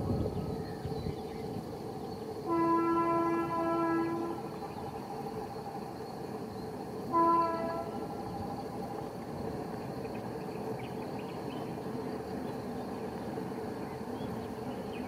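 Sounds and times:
train rumbling: 0.0 - 15.0
train air horn blast: 2.5 - 4.5, 7.1 - 8.2.

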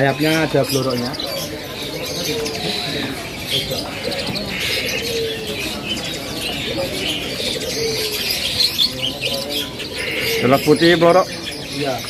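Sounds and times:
birds chirping and whistling: 0.0 - 12.0
low cooing: 1.1 - 11.4.

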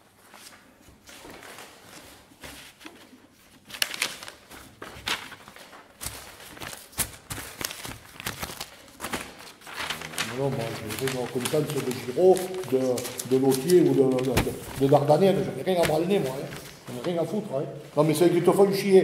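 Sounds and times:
papers rustling: 0.1 - 19.0
paper sheets knocking on wooden table: 10.6 - 17.2.

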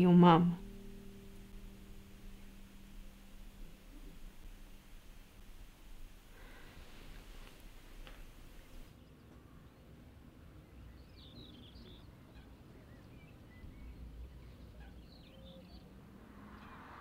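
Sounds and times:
small birds chirping: 10.6 - 17.0.

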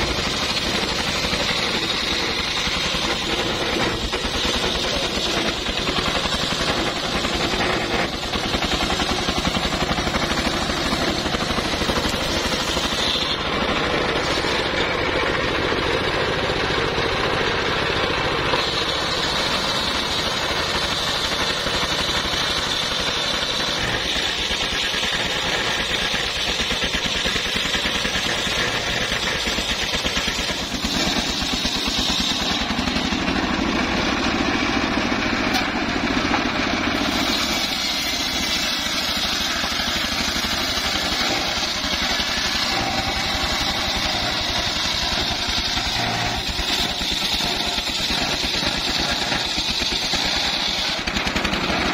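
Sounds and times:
saw blade cutting wood: 0.0 - 51.9.

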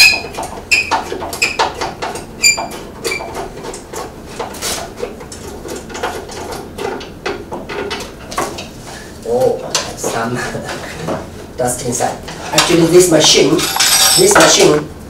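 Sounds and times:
screw squeaking: 0.0 - 3.4.

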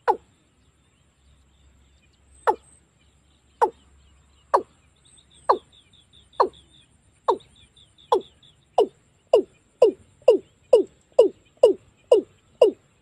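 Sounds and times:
bird calling with falling notes: 0.0 - 0.2.

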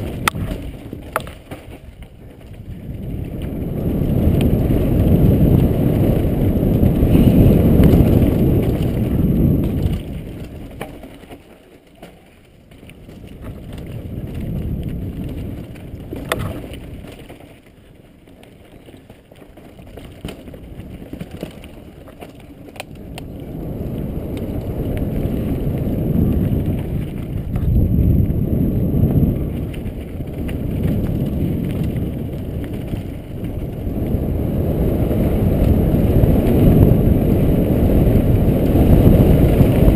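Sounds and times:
wind buffeting microphone: 0.0 - 11.0, 12.6 - 17.9, 18.6 - 39.9
bike rattling over rocks: 0.0 - 39.9
tyres rolling on dirt: 0.0 - 39.9.

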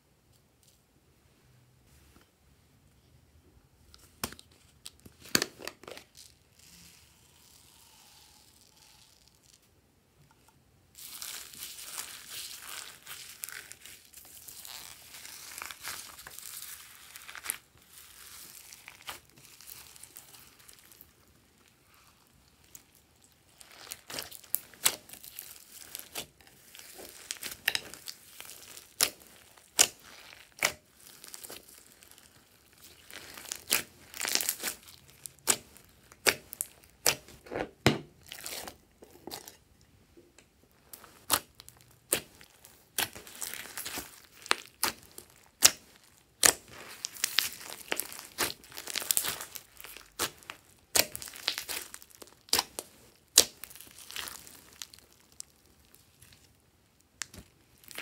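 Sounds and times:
sticky slime tearing and crackling: 11.0 - 37.6, 38.2 - 39.6, 40.8 - 56.5, 57.2 - 58.0.

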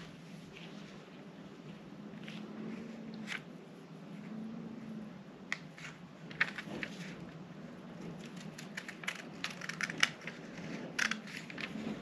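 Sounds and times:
scissors cutting paper: 8.0 - 12.0.

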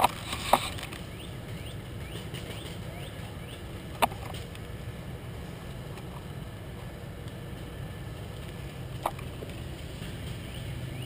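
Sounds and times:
bird chirping: 0.8 - 3.8, 10.3 - 11.0.

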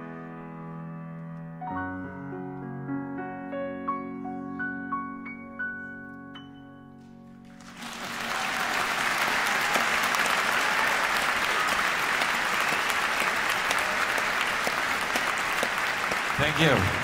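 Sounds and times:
piano chord: 0.0 - 7.8
audience applause: 7.6 - 17.0.

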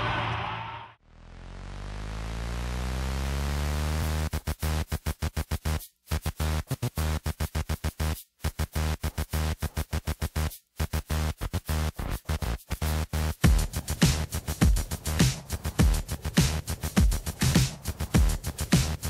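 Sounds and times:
stuttering synth bass: 0.0 - 14.0
electronic dance music: 0.0 - 19.0.

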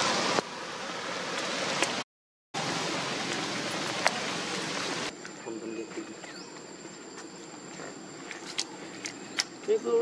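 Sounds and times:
rain falling on stone paving: 2.6 - 5.1.

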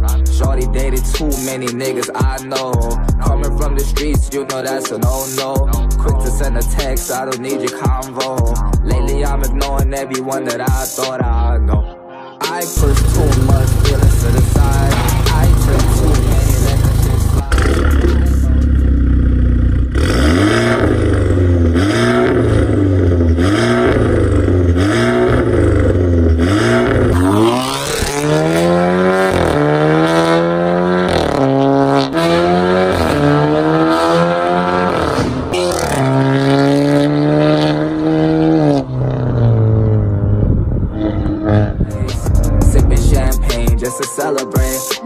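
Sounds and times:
car accelerating through gears: 12.8 - 42.0
car engine idling and revving: 12.8 - 43.7.

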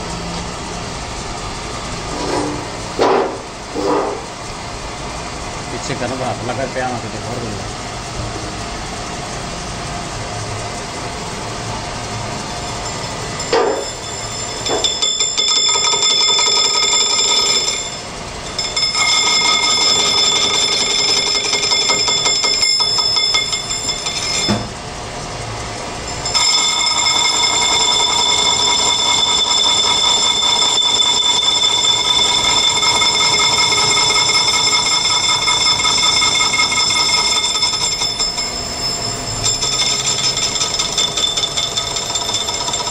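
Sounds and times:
lathe running: 0.0 - 42.9
lathe tool squealing: 12.0 - 24.8, 25.6 - 42.9.

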